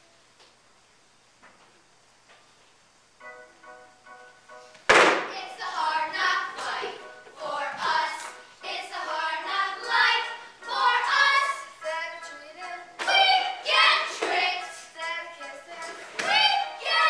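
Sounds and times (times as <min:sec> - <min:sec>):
girls singing together: 0:05.2 - 0:17.0.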